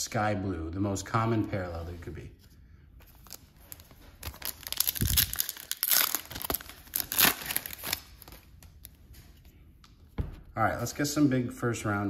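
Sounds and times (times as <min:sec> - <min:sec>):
foil wrapper tearing and crinkling: 0:03.2 - 0:08.5.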